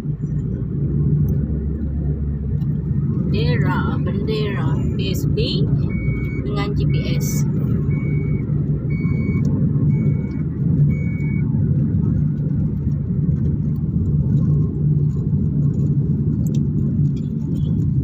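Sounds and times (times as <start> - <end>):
tyre and engine rumble: 0.0 - 18.0
short high beeps: 5.8 - 9.4.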